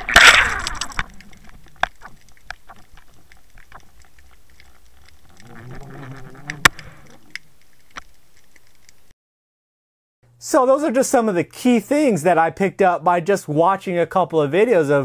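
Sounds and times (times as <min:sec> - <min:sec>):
low underwater hum: 0:00.0 - 0:09.1
underwater clicks and pops: 0:00.0 - 0:09.1.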